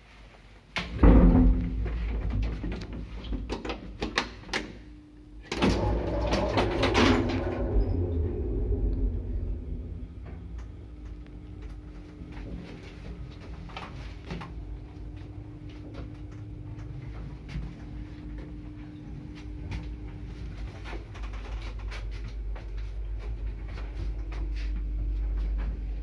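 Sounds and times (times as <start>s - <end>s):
lift motor hum: 5.3s - 21.4s
low rumble: 5.5s - 13.8s.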